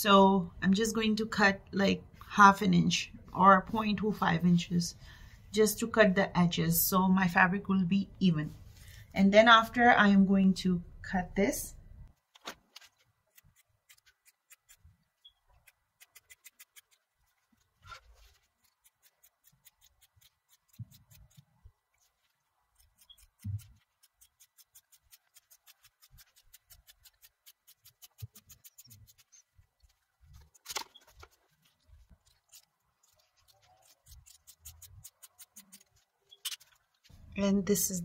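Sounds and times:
scissors snipping fabric: 0:22.7 - 0:29.4, 0:30.3 - 0:37.0.

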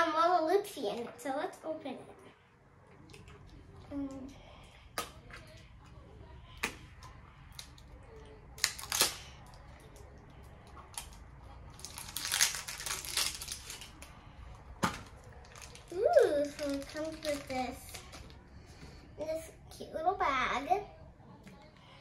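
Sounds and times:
wrapper crinkling: 0:08.6 - 0:09.6, 0:10.9 - 0:14.2, 0:14.8 - 0:18.4.

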